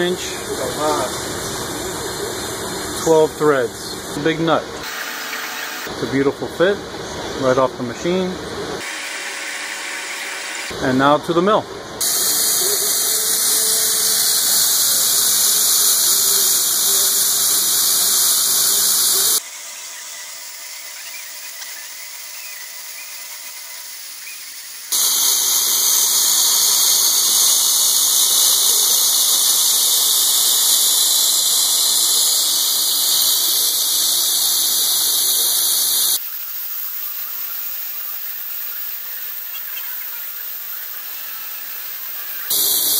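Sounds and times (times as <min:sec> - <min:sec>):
milling machine cutting steel: 0:08.8 - 0:10.8, 0:12.0 - 0:19.4, 0:24.9 - 0:36.2, 0:42.5 - 0:42.9
coolant spray hiss: 0:12.0 - 0:19.4, 0:22.4 - 0:42.9.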